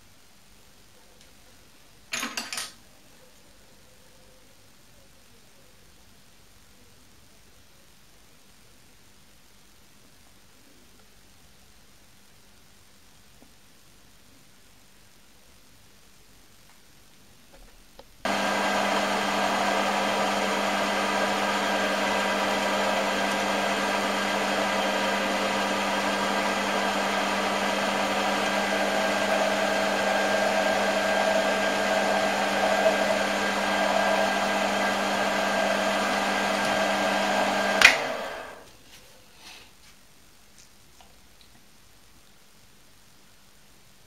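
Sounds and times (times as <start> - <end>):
lathe motor whining: 18.3 - 38.6.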